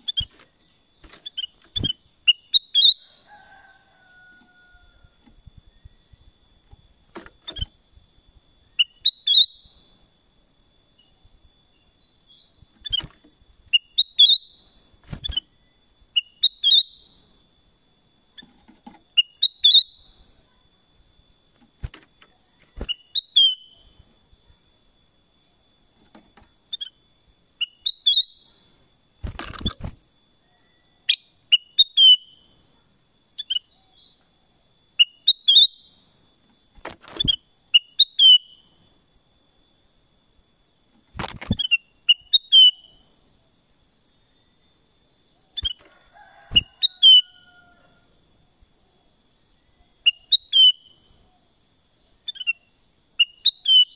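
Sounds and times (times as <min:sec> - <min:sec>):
faint steady high tone: 0:00.0 - 0:53.9
bird singing whistled phrases: 0:01.3 - 0:03.0, 0:08.7 - 0:09.8, 0:13.8 - 0:14.6, 0:16.2 - 0:17.1, 0:19.2 - 0:20.1, 0:41.6 - 0:42.9, 0:53.2 - 0:53.9
noisy rustle: 0:29.2 - 0:30.1, 0:41.0 - 0:41.7.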